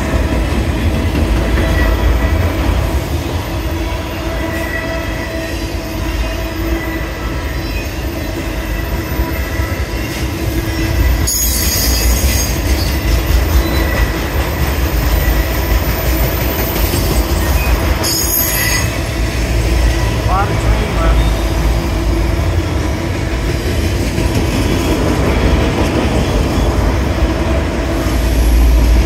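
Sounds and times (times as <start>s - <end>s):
freight train rumble: 0.0s - 29.0s
train wheel squeal: 1.4s - 20.1s, 21.0s - 21.8s.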